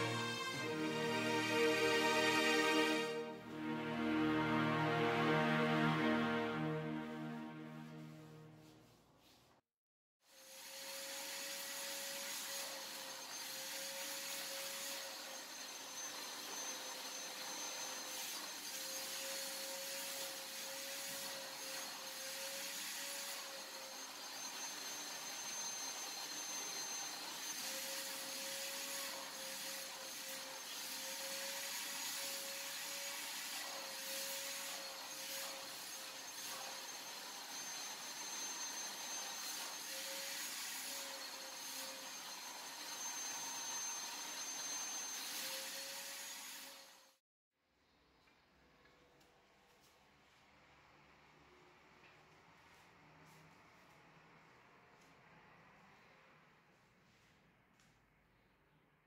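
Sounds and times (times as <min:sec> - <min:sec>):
shop vacuum running: 0:10.4 - 0:47.1.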